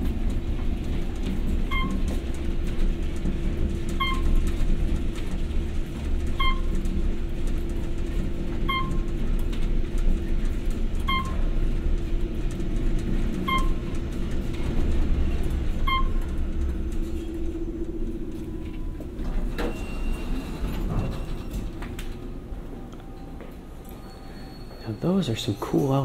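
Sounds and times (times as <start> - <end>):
elevator doors sliding open: 0.0 - 26.0
elevator rumble and hum: 0.0 - 26.0
short electronic beep: 6.4 - 6.7.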